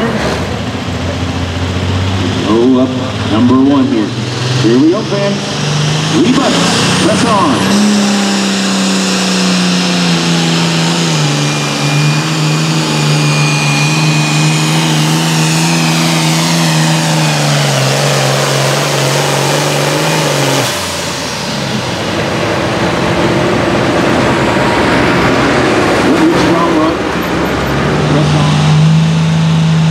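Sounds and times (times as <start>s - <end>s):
diesel tractor engine under load: 0.0s - 29.9s
turbo whistle: 10.2s - 16.8s.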